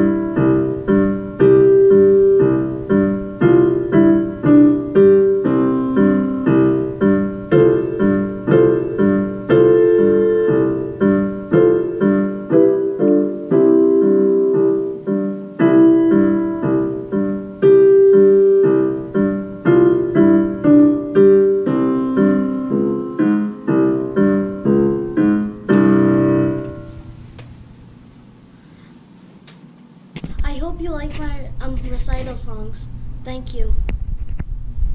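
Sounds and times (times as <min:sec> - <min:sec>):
electronic keyboard piano piece: 0:00.0 - 0:27.3.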